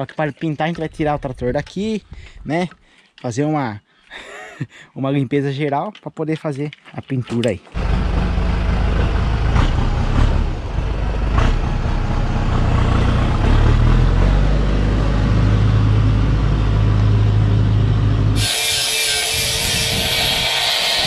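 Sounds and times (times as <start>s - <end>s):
tractor diesel engine running: 7.8s - 18.4s.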